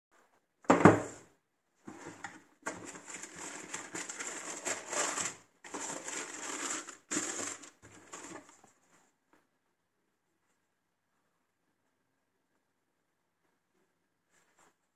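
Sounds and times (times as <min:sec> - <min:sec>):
tissue paper crinkling: 0:02.7 - 0:08.6.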